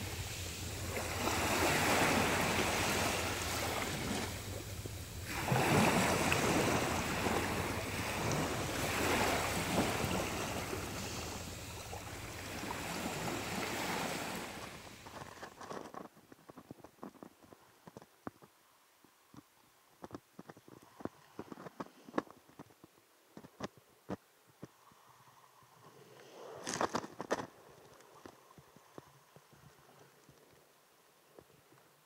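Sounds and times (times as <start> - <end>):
waves washing up pebble beach: 0.0 - 15.6
wind on microphone: 0.0 - 16.0.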